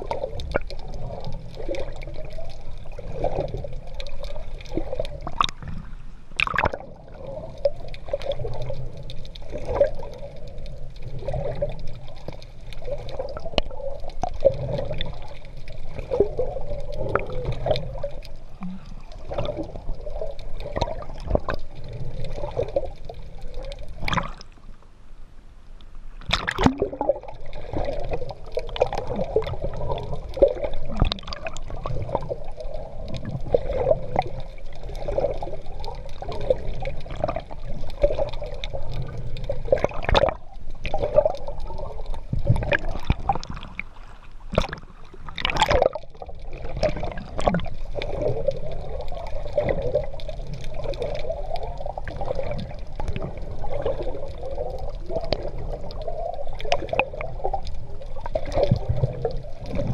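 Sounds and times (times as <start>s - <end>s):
water gurgling and splashing: 0.0s - 24.8s, 26.2s - 59.9s.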